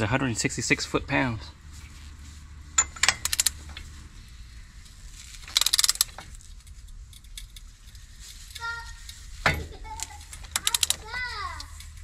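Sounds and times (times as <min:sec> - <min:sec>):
socket wrench clinking: 0:02.8 - 0:03.6
ratchet clicks: 0:02.8 - 0:03.9, 0:05.3 - 0:09.2, 0:10.0 - 0:12.0.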